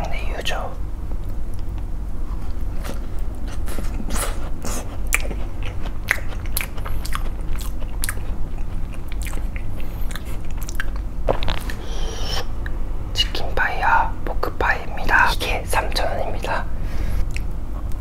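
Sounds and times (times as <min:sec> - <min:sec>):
chewing with crunches: 0:02.4 - 0:11.8
biting crisp pastry: 0:02.7 - 0:11.8.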